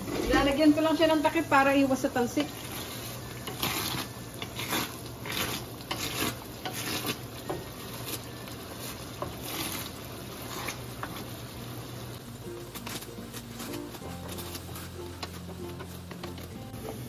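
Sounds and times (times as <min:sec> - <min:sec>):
wooden spatula scraping a pan: 0:00.0 - 0:11.6, 0:12.7 - 0:17.0
coconut cream sizzling in a skillet: 0:00.0 - 0:17.0.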